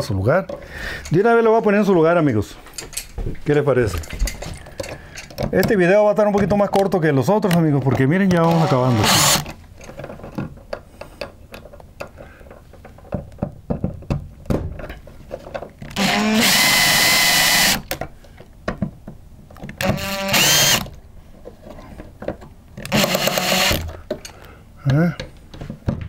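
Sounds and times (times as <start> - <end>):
power screwdriver driving screws: 8.3 - 9.6, 15.9 - 18.0, 19.8 - 21.0, 22.8 - 24.0.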